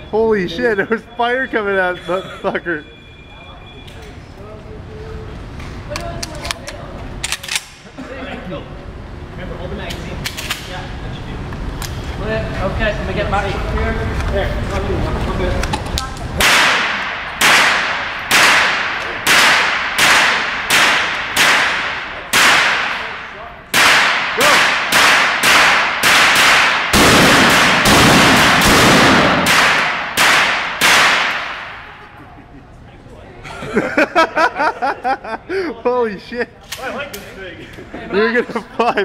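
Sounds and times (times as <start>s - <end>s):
shotgun shots echoing indoors: 16.4s - 32.0s.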